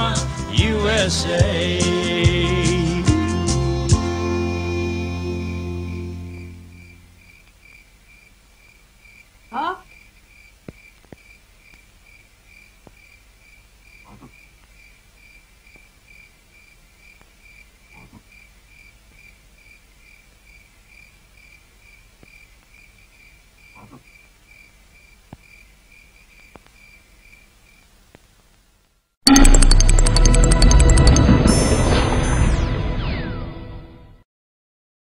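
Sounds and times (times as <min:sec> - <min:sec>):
cricket chirping: 0:05.5 - 0:27.9
short low croaks: 0:14.0 - 0:14.9, 0:17.2 - 0:18.5, 0:23.6 - 0:24.3
faint clicks: 0:26.4 - 0:26.8.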